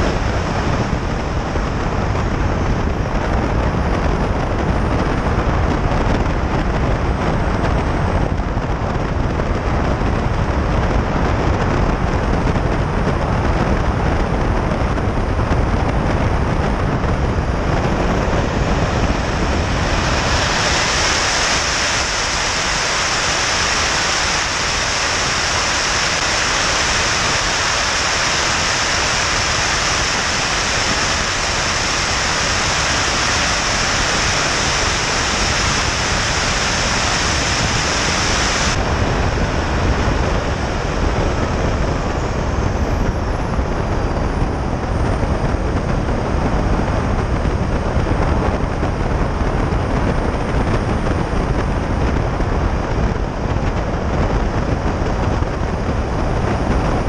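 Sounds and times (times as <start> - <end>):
airflow noise: 0.0 - 57.0
model jet engine roaring: 0.0 - 57.0
thin high whine: 0.0 - 57.0
high hiss: 18.4 - 39.4.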